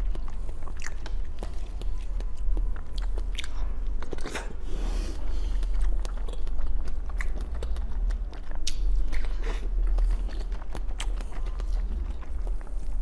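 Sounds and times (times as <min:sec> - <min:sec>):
chewing soft jelly: 0:00.0 - 0:13.0
wet mouth clicks and smacks: 0:05.6 - 0:12.6.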